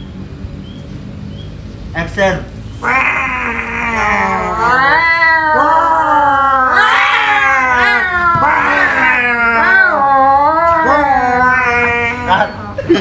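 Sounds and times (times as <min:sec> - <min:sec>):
people imitating cat yowls: 0:02.8 - 0:12.9.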